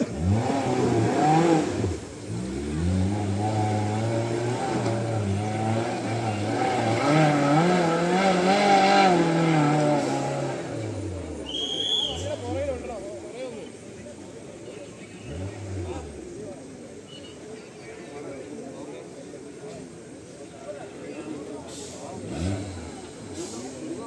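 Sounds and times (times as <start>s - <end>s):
engine revving under load: 0.0s - 13.0s, 15.2s - 16.7s, 21.7s - 24.0s.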